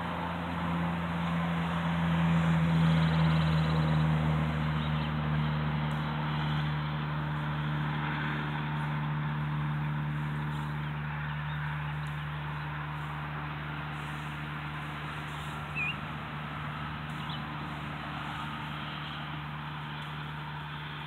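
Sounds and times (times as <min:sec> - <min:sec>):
distant engine humming: 0:00.0 - 0:21.0
bird chirp: 0:02.9 - 0:05.2, 0:15.3 - 0:16.1, 0:17.1 - 0:17.5.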